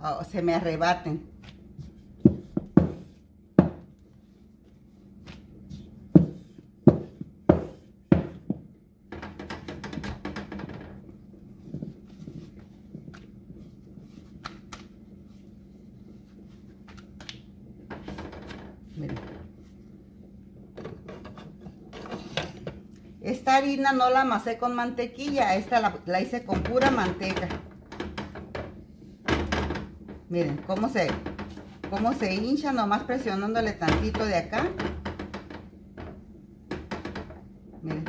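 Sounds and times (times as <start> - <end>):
low steady hum: 0.0 - 38.0
rolling pin rolling dough: 0.3 - 38.0
dough handling: 0.8 - 38.0
rolling pin knocking on countertop: 2.2 - 3.9, 6.1 - 10.7, 25.2 - 37.4.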